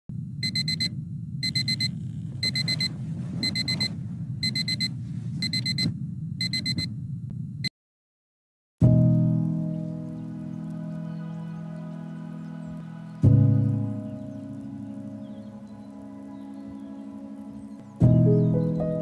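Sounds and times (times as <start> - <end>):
steady low rumble: 0.1 - 7.7
electronic alarm beeping: 0.4 - 6.9.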